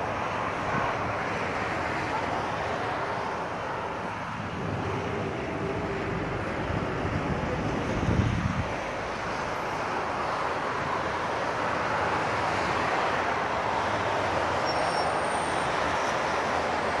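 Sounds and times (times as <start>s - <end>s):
road traffic hiss: 0.0s - 17.0s.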